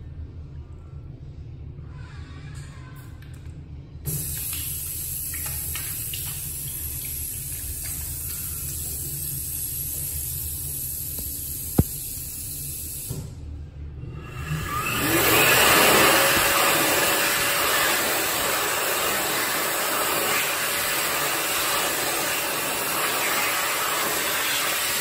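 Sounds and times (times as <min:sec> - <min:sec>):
faucet water running into sink: 0:04.1 - 0:13.2, 0:14.5 - 0:25.0.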